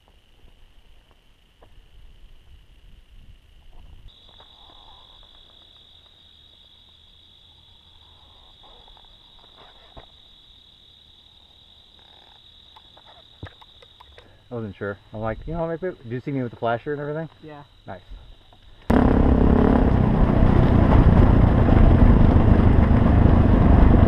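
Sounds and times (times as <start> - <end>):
night insects trilling: 0.0 - 19.0
low rumble: 18.9 - 24.0.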